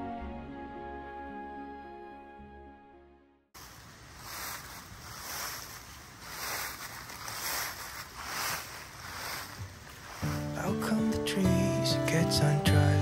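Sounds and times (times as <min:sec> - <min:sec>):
footsteps crunching through leaves: 0:03.6 - 0:12.0.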